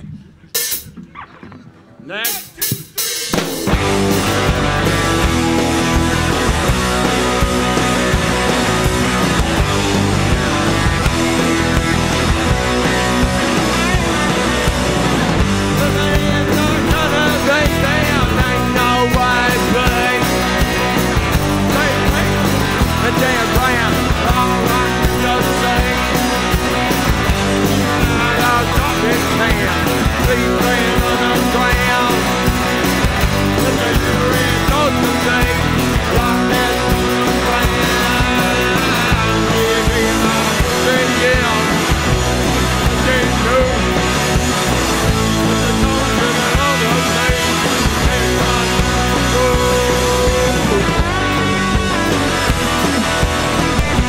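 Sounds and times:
drums: 0.0 - 54.0
electric guitar: 0.7 - 54.0
man singing into a microphone: 15.6 - 26.5, 27.7 - 32.5, 33.4 - 44.0, 44.9 - 52.2.

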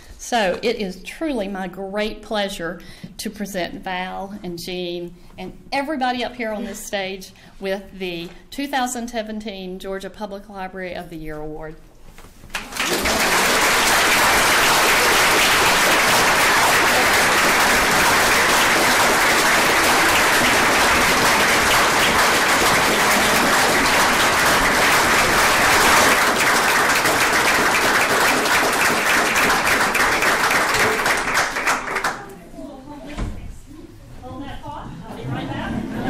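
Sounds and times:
audience applauding: 12.5 - 32.3.

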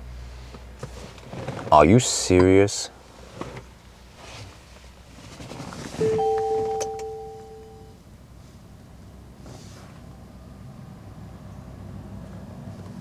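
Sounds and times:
two-note car warning chime: 6.0 - 8.0.

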